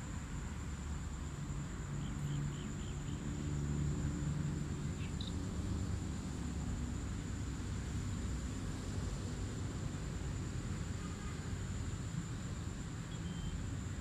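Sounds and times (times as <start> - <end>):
faint chirps: 13.1 - 13.6.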